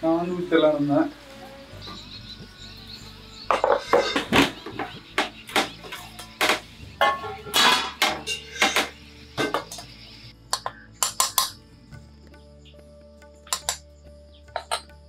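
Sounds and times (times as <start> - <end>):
metal plates and bowl clinking: 3.5 - 9.9, 10.6 - 11.6, 14.5 - 14.9.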